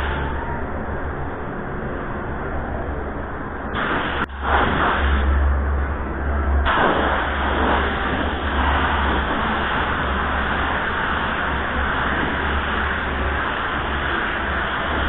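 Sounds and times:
low steady hum: 0.0s - 15.0s
spray gun hissing: 3.8s - 5.3s, 6.7s - 15.0s.

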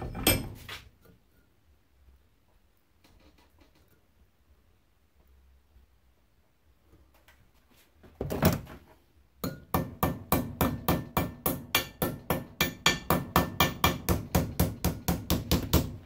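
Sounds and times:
hammer ringing on sheet metal: 9.4s - 16.0s.

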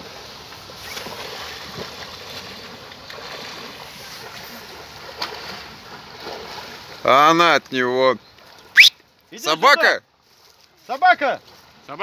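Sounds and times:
person swimming splashing: 0.0s - 7.1s.

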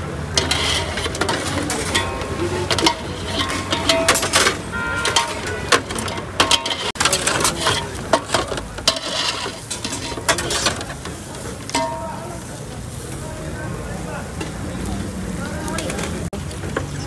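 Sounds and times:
metal skewers clinking: 0.2s - 12.5s.

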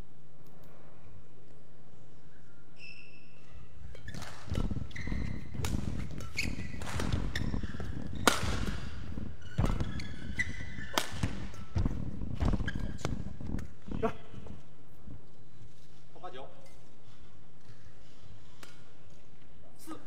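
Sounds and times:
shoes squeaking on court: 2.7s - 14.7s
rackets striking shuttlecock: 3.9s - 11.8s
footfalls on court mat: 4.1s - 14.6s.

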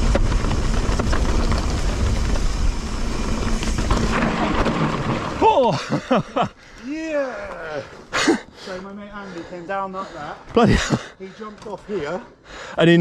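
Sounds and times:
bike tyre and frame rattle: 0.0s - 8.2s.

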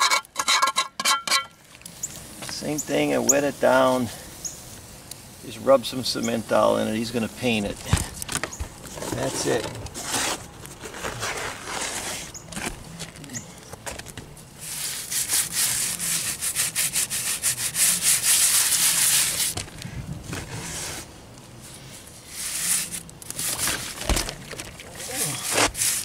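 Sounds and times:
cement rubbed on concrete block: 11.2s - 12.3s, 14.6s - 19.6s, 25.0s - 26.0s.

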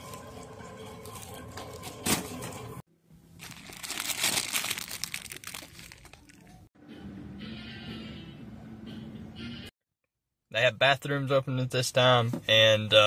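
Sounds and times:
plastic packs crinkling: 3.4s - 6.6s.

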